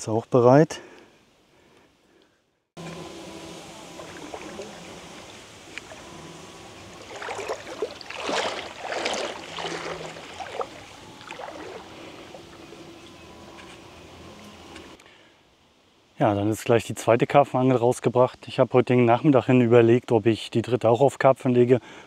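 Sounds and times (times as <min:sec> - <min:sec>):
faint steady hum: 0:00.0 - 0:22.0
lake water splashing and lapping: 0:02.8 - 0:13.1.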